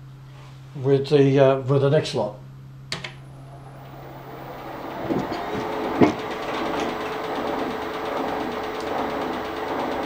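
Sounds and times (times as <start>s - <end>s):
milling machine humming: 3.0s - 10.0s.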